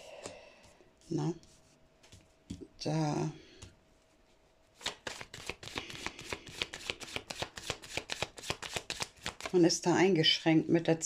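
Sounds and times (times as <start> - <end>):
cards being shuffled: 4.8 - 9.6.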